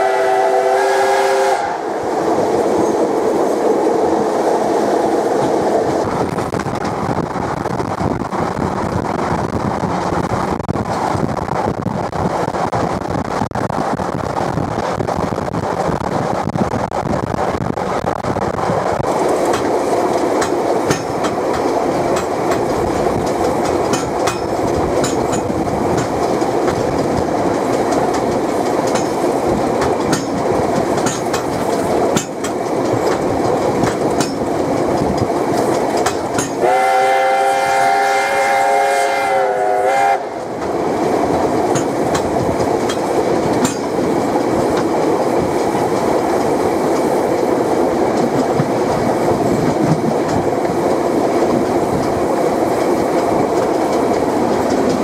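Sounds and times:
steam whistle blast: 0:00.0 - 0:01.9, 0:36.6 - 0:40.4
train rumbling on track: 0:00.0 - 0:55.0
wheels clicking: 0:14.5 - 0:36.7, 0:40.3 - 0:55.0.

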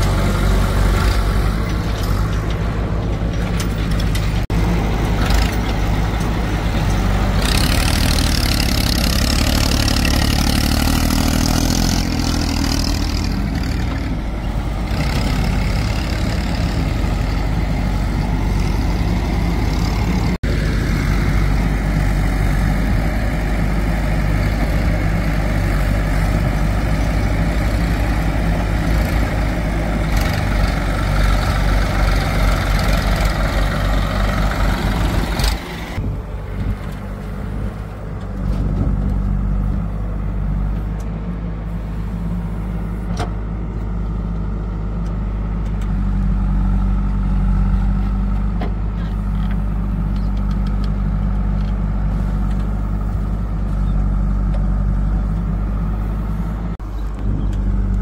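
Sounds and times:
backhoe digging soil: 0:00.0 - 0:58.0
diesel engines running: 0:00.0 - 0:58.0.

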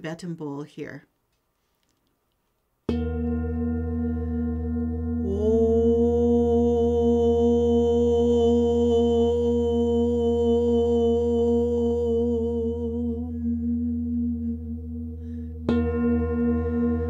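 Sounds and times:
singing bowl ringing: 0:02.9 - 0:06.5, 0:14.8 - 0:17.0
woman chanting: 0:05.3 - 0:14.9.

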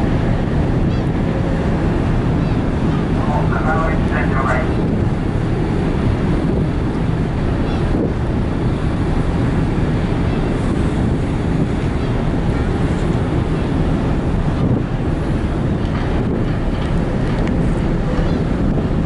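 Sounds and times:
ship engines droning: 0:00.0 - 0:19.0
wind buffeting microphone: 0:00.0 - 0:19.0.

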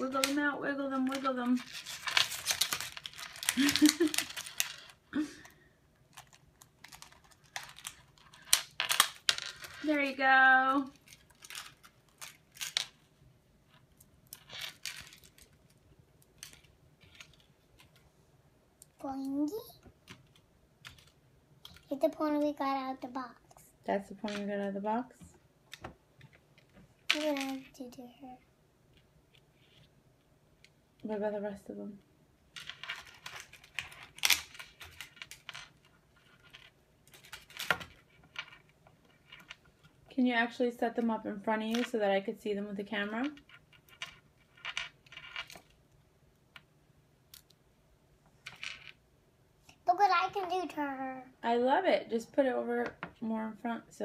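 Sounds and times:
plastic packaging crinkling: 0:01.6 - 0:05.0.

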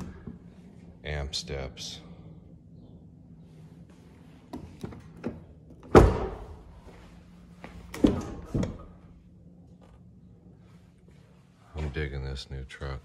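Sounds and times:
truck door thunk: 0:05.9 - 0:06.5.

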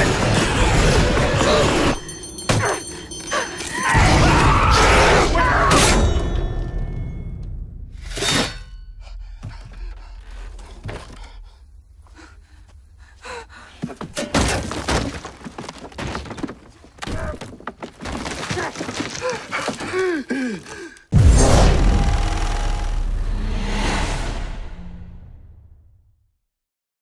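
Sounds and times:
man gasping: 0:19.2 - 0:21.1
low rumble: 0:21.2 - 0:26.1.

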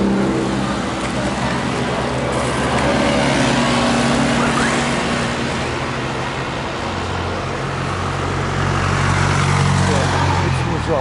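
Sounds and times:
engine hum: 0:00.0 - 0:11.0
street noise rumble and hiss: 0:00.0 - 0:11.0.

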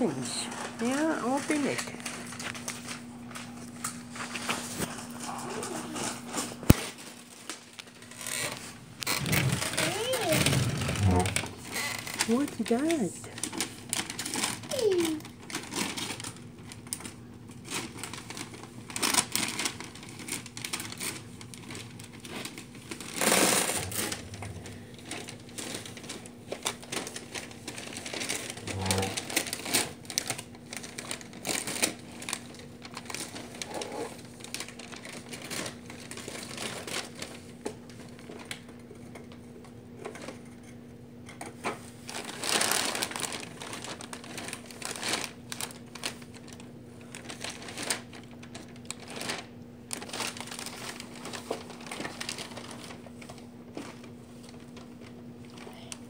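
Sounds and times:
wrapping paper crinkling and tearing: 0:00.0 - 0:38.8, 0:41.8 - 0:56.0.

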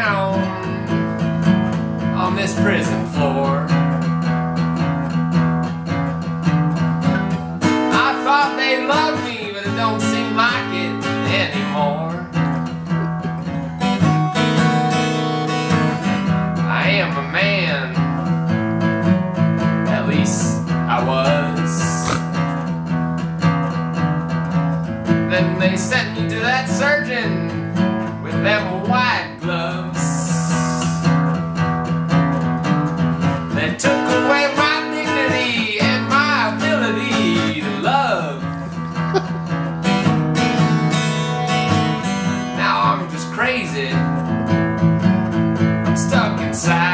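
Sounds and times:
man singing: 0:00.0 - 0:01.2, 0:02.1 - 0:03.8, 0:07.7 - 0:12.4, 0:15.7 - 0:18.1, 0:19.9 - 0:22.4, 0:25.2 - 0:31.2, 0:33.5 - 0:39.3, 0:42.0 - 0:44.2, 0:45.8 - 0:46.9
acoustic blues guitar: 0:00.0 - 0:46.9.

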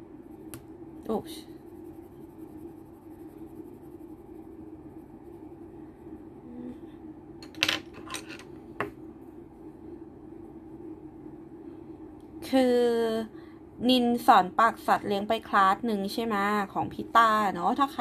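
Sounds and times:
low hum: 0:00.0 - 0:14.1.

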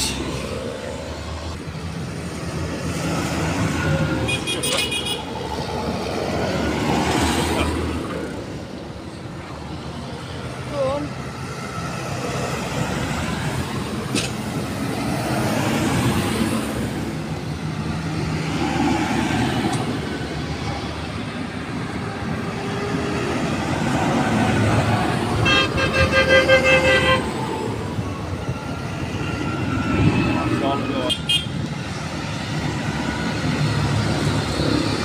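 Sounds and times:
road rumble: 0:00.0 - 0:35.0
vehicle horn short toots: 0:25.4 - 0:27.2.

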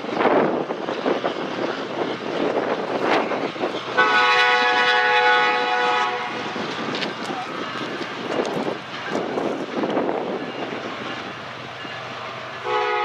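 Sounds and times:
freight train rumbling past: 0:00.0 - 0:13.0
train wheel clacks: 0:00.0 - 0:13.0
locomotive air horn chord: 0:04.0 - 0:06.4, 0:12.6 - 0:13.0.

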